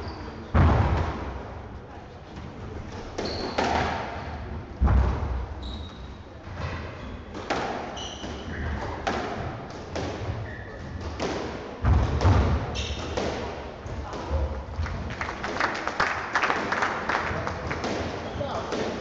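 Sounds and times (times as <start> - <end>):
squash ball hitting rackets: 2.9 - 5.4, 7.3 - 14.9, 16.5 - 19.0
shoes squeaking on wooden floor: 3.2 - 3.8, 7.9 - 9.0, 10.4 - 11.0, 12.7 - 13.2.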